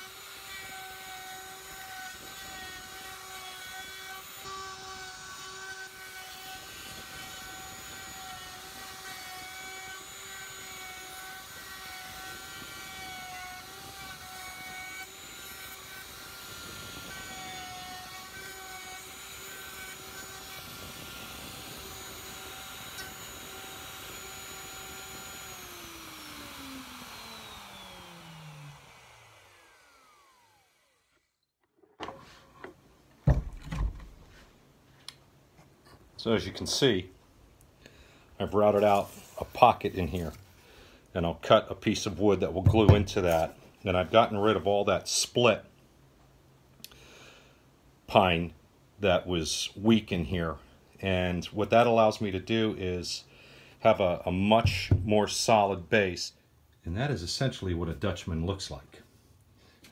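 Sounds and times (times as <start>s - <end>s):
router motor whining: 0.0s - 32.7s.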